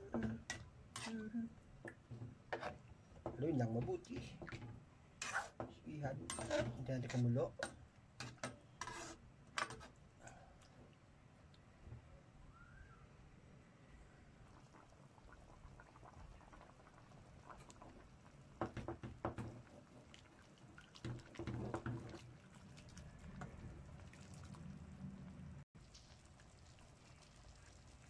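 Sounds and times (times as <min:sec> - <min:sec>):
ladle clinking and scraping pan: 0:05.2 - 0:09.9.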